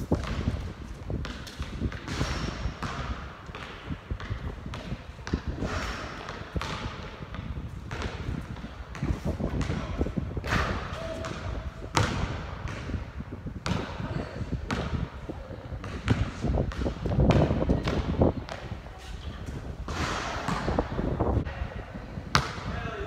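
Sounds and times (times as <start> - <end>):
basketball bouncing on hard court: 0.2 - 15.2, 15.8 - 18.7, 19.9 - 21.0, 22.3 - 22.7.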